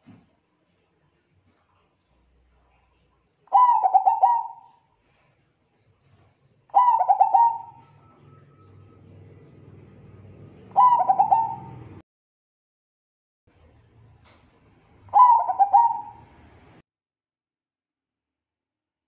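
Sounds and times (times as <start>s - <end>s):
dove cooing: 3.5s - 4.8s, 6.7s - 9.0s, 10.6s - 12.0s, 15.1s - 16.3s.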